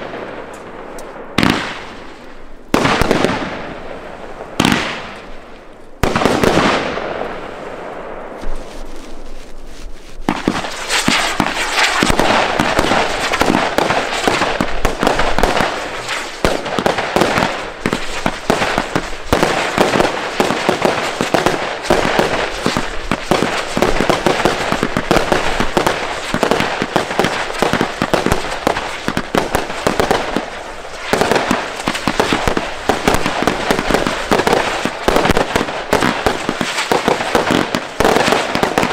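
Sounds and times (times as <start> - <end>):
firework bangs: 0.0 - 9.3, 10.2 - 38.9
firework crackling: 0.0 - 38.9.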